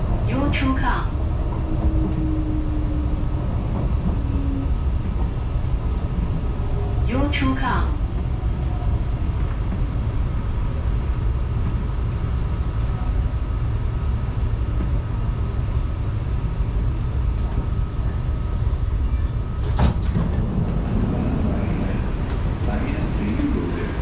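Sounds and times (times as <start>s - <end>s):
train rumble: 0.0s - 24.0s
faint high squeal: 15.7s - 16.7s, 17.9s - 19.4s.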